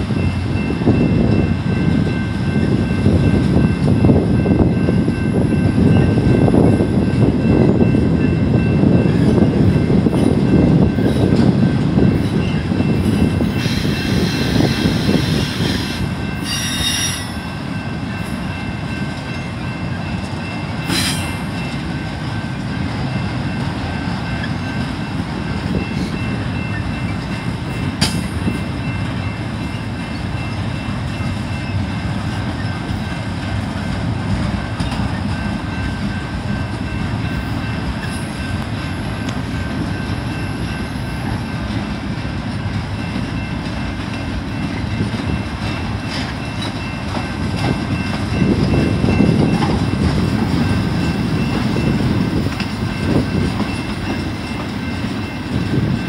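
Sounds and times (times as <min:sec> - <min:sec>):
train wheels rumbling on rails: 0:00.0 - 0:56.0
high-pitched wheel squeal: 0:13.6 - 0:17.4.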